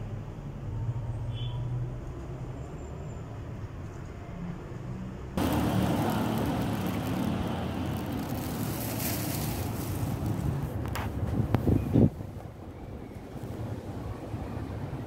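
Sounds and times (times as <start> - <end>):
traffic rumble: 0.0 - 15.0.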